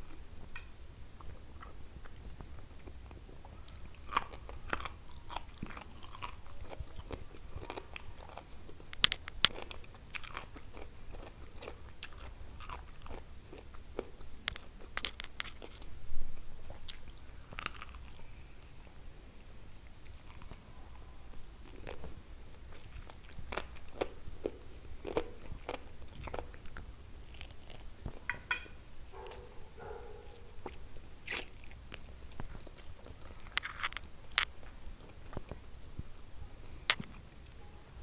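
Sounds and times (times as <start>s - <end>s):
moist chewing: 1.2s - 15.9s, 16.7s - 36.2s
crisp bites and crackles: 19.9s - 22.2s, 22.8s - 35.6s.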